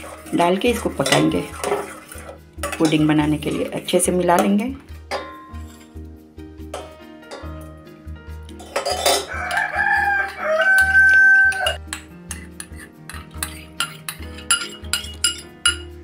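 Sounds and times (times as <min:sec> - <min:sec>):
metal spoon clinking bowl and pot: 0:00.0 - 0:06.0, 0:06.7 - 0:07.7, 0:08.5 - 0:16.0
background music: 0:00.0 - 0:16.0
rooster crowing: 0:09.3 - 0:11.8.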